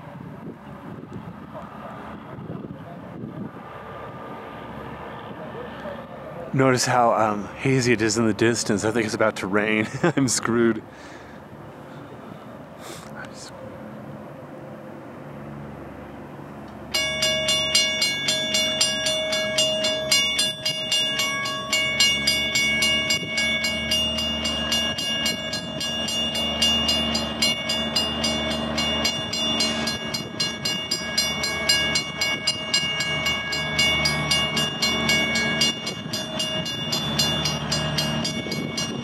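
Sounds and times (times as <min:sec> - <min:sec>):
railroad bell ringing rapidly: 0:16.9 - 0:39.0.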